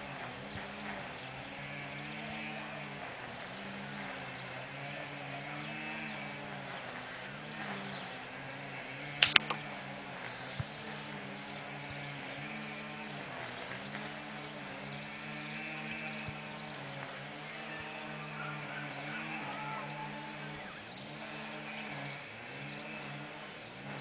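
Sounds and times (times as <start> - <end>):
low wavering hum: 0.0 - 24.0
faint click: 9.2 - 9.6.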